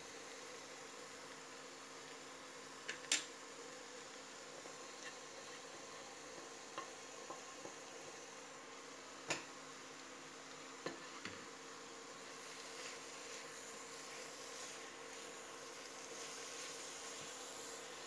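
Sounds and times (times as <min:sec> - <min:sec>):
faint steady hum: 0:00.0 - 0:18.0
wooden spatula scraping: 0:12.4 - 0:17.8.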